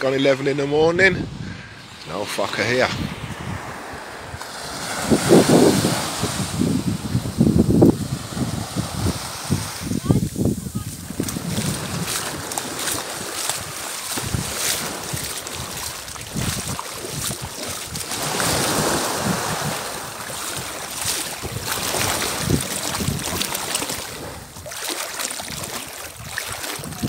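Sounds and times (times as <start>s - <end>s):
wind buffeting microphone: 0.7s - 27.0s
small waves lapping: 1.5s - 7.1s, 8.0s - 27.0s.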